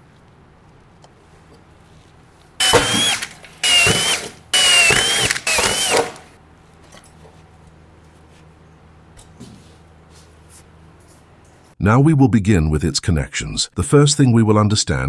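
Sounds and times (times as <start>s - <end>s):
electric drill boring through metal: 2.6s - 6.3s.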